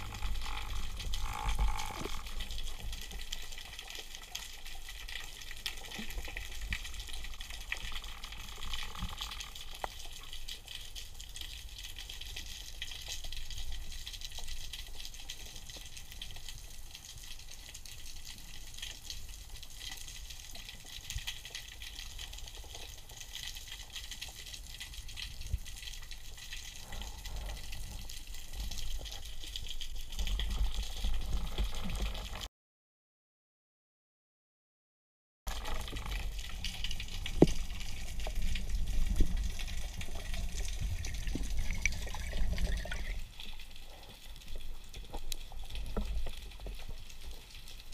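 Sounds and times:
low water rumble: 0.0 - 12.3, 24.4 - 32.5, 35.5 - 47.9
underwater clicking crackle: 0.0 - 32.5, 35.5 - 47.9.

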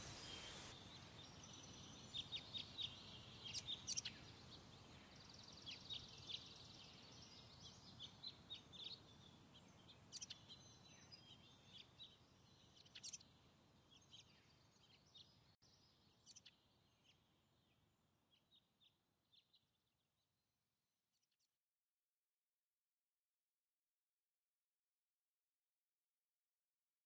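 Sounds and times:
low background hiss: 0.0 - 16.9
faint birds chirping: 0.0 - 20.5.

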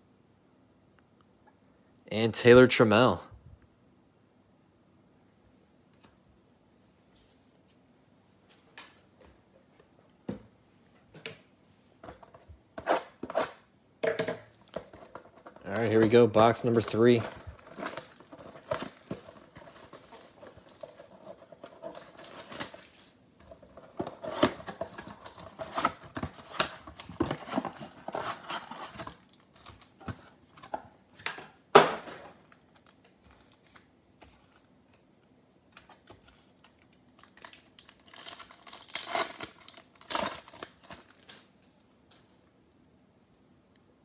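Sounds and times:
card packs rustling: 14.6 - 35.0, 35.7 - 42.3
shrink wrap crinkling and tearing: 15.0 - 30.1, 35.7 - 41.8.

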